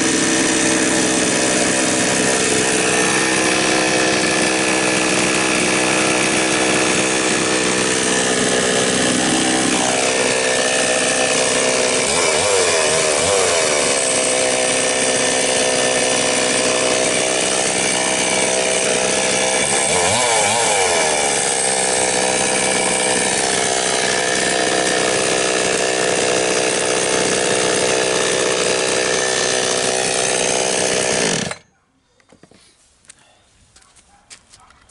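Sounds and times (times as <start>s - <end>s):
chainsaw engine running: 0.0s - 31.7s.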